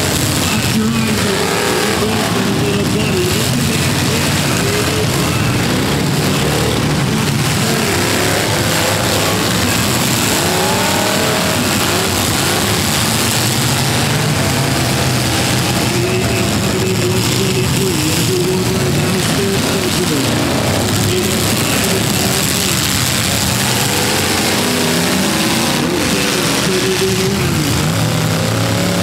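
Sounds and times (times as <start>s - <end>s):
car engines revving: 0.0s - 29.0s.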